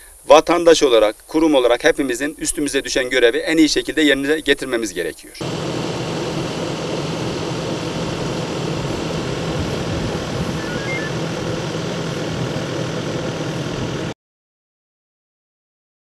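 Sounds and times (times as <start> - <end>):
engine running steadily: 5.4 - 14.2.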